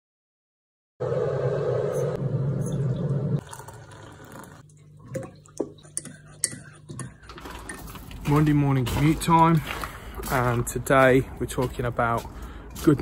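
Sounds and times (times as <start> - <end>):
liquid pouring into a mug: 3.4 - 8.2.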